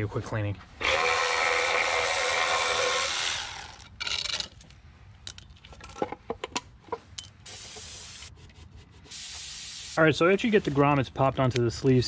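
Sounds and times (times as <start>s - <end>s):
aerosol spraying: 7.5s - 8.3s, 9.1s - 10.0s.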